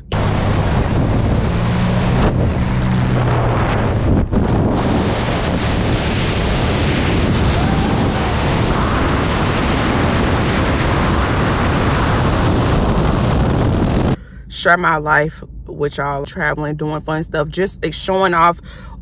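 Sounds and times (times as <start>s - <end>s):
loud wind roar: 0.0s - 14.3s.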